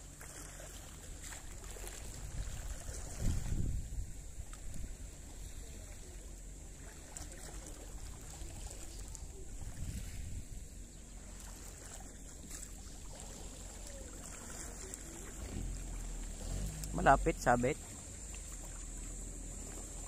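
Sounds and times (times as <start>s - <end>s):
wind noise on microphone: 2.0s - 5.1s, 9.4s - 10.8s
faint clicks: 16.7s - 17.0s.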